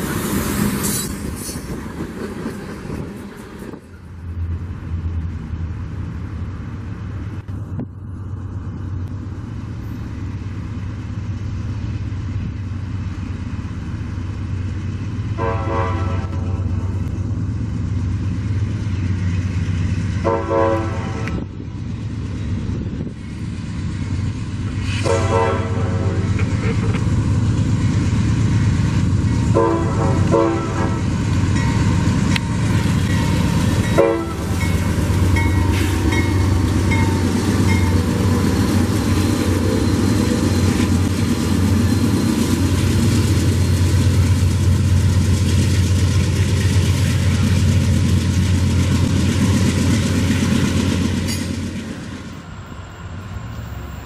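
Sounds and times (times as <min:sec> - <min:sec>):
diesel locomotive engines: 0:00.0 - 0:54.0
rail cars clattering: 0:00.0 - 0:54.0
train horn blasts: 0:15.4 - 0:16.8, 0:20.2 - 0:21.4, 0:24.9 - 0:26.4, 0:29.5 - 0:31.2, 0:33.8 - 0:34.7.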